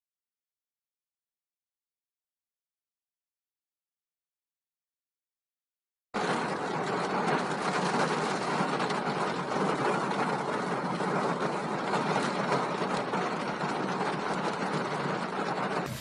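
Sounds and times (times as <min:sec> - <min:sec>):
rain on car: 0:06.2 - 0:16.0.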